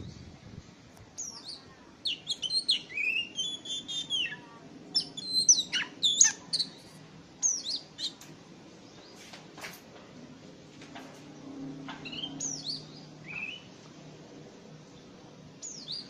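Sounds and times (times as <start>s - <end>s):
bird singing whistled phrases: 1.2s - 4.4s, 5.0s - 6.8s, 12.1s - 13.7s.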